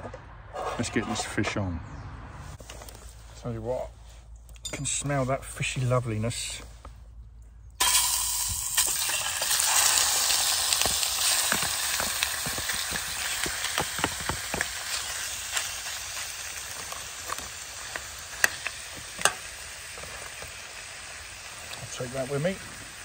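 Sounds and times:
fish sizzling in a pan: 7.8s - 23.0s.

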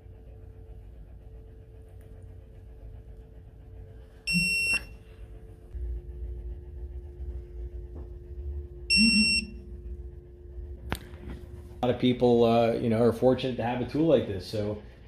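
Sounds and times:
high electronic beeps: 4.3s - 4.9s, 8.9s - 9.6s.

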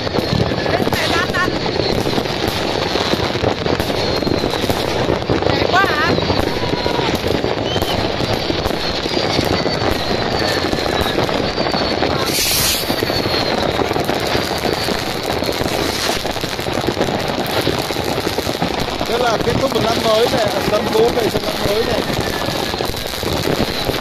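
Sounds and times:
falling firework whistles: 0.0s - 24.0s
fireworks bursting and crackling: 0.0s - 24.0s
brief hiss: 12.2s - 13.0s.

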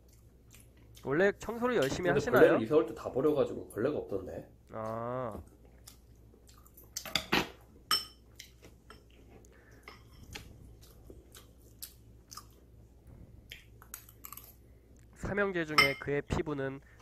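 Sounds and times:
person chewing with mouth open: 0.0s - 1.1s, 4.7s - 7.1s, 8.2s - 15.1s.

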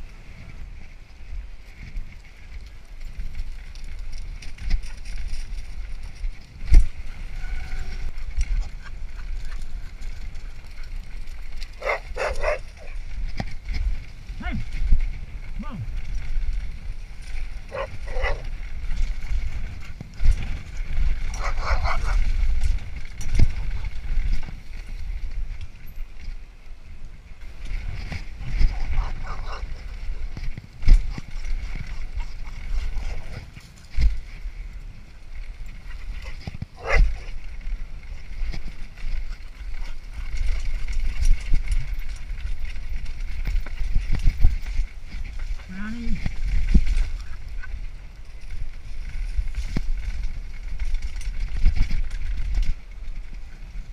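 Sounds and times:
wind buffeting microphone: 0.0s - 53.9s
dog barks: 11.8s - 13.0s, 17.7s - 18.4s, 21.4s - 22.2s, 36.8s - 37.3s.

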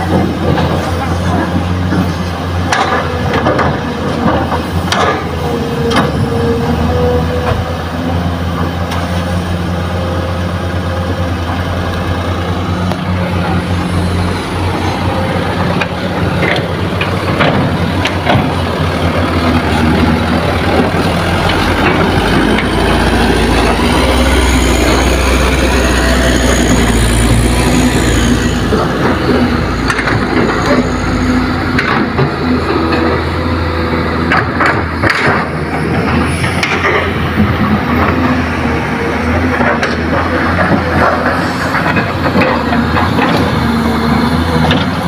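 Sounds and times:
dump truck engine pulling away: 0.0s - 45.0s
excavator diesel engine running: 0.0s - 45.0s.

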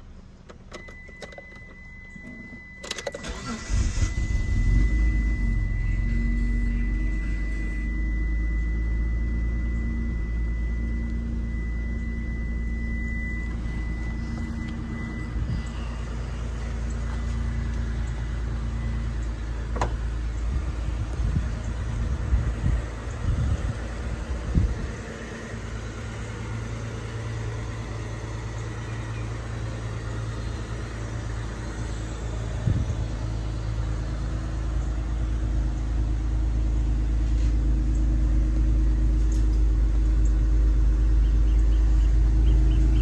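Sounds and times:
car engine starting and idling: 0.0s - 43.0s
high warning chime: 0.7s - 19.5s.

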